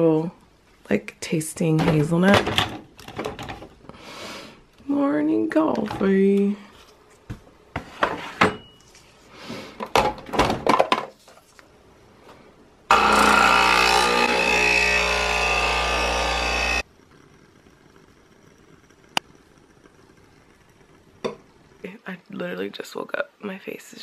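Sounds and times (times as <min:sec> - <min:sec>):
coffee machine pump humming: 0:12.9 - 0:21.8.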